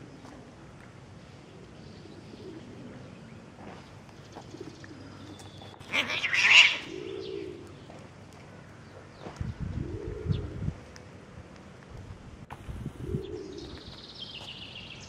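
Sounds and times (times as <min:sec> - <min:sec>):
cat screech and hiss: 0:05.9 - 0:06.9.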